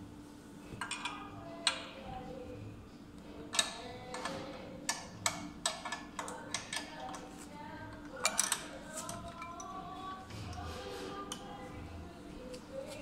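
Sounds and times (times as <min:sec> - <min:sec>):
wrench metallic clicks and clinks: 0:03.5 - 0:07.2, 0:08.1 - 0:09.7.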